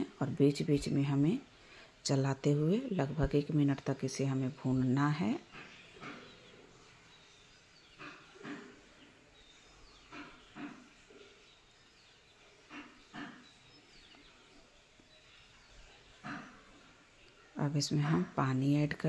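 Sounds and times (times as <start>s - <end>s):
faint bird chirps: 5.4s - 18.3s.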